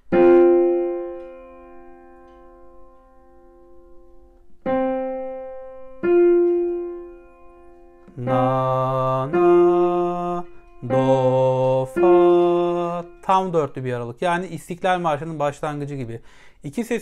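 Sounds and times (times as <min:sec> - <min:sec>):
piano notes: 0:00.0 - 0:15.8
man singing: 0:08.1 - 0:13.8.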